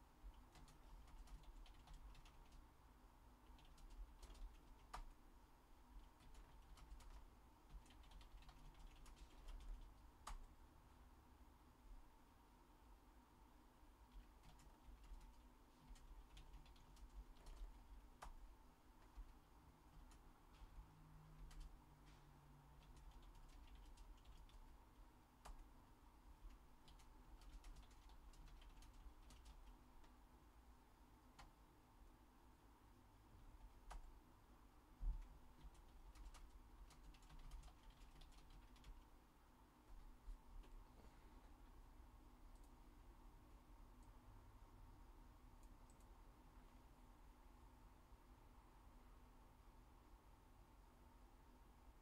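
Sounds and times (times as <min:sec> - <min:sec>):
keyboard typing: 0:00.3 - 0:02.7, 0:03.4 - 0:05.2, 0:06.0 - 0:10.6, 0:14.1 - 0:24.8, 0:25.4 - 0:25.7, 0:26.4 - 0:30.2, 0:33.6 - 0:34.2, 0:35.1 - 0:39.1, 0:42.5 - 0:42.8, 0:45.6 - 0:46.2.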